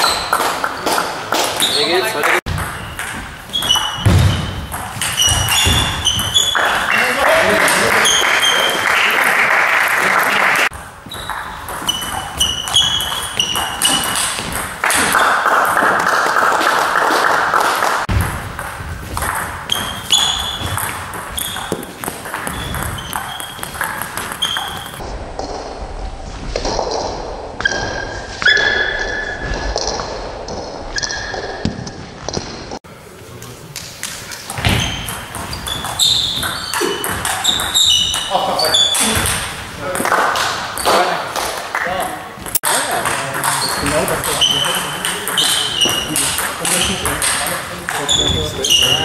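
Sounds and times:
table tennis ball bouncing: 2.5 - 8.7, 10.7 - 17.3, 18.1 - 25.6, 34.0 - 49.0.

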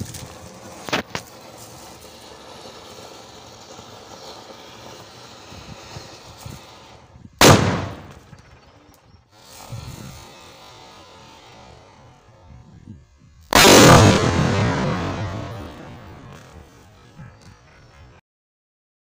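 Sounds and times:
sharp cracks: 0.0 - 12.0, 13.4 - 17.7
firework fountain spraying: 0.0 - 18.2
loud firecracker bang: 7.4 - 8.5, 13.5 - 17.1.

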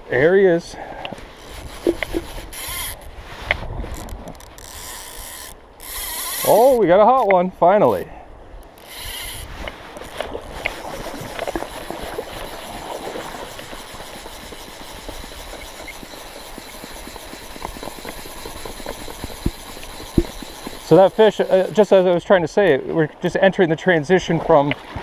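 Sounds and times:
wind on microphone: 1.4 - 4.9, 8.4 - 15.8.

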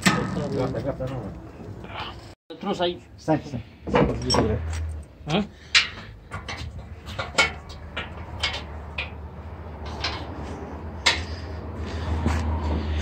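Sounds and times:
metal knocks and clanks: 3.8 - 11.5.

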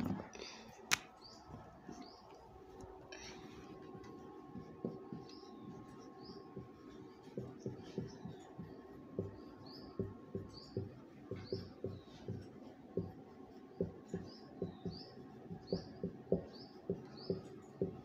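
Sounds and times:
marker squeaking on whiteboard: 3.5 - 18.0
marker tapping on whiteboard: 3.9 - 18.0.

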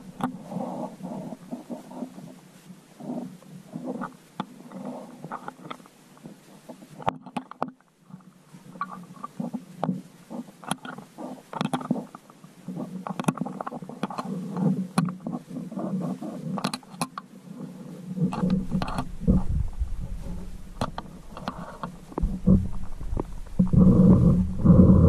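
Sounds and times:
underwater clicks and knocks: 6.7 - 11.0, 11.6 - 15.5, 18.2 - 25.0
muffled underwater rumble: 17.7 - 25.0.

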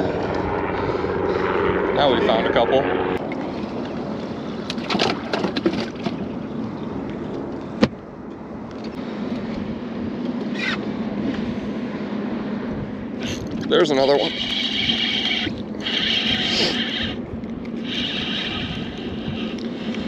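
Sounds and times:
low motor hum: 0.0 - 20.0
wind and water noise: 0.0 - 20.0
handling knocks and clatter: 4.8 - 6.3.

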